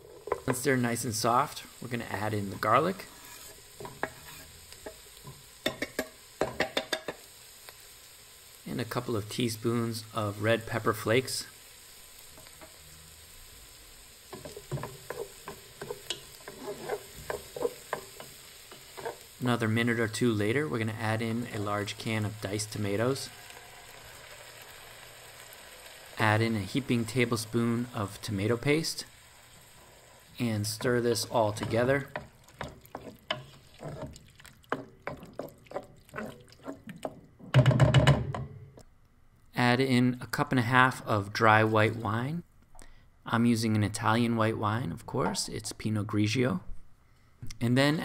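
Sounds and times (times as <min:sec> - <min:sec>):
faint sizzle: 0:00.0 - 0:37.2
wooden spoon stirring in pot: 0:02.9 - 0:07.1, 0:14.3 - 0:23.6, 0:29.7 - 0:37.7
spoon stirring thick sauce: 0:30.8 - 0:37.3.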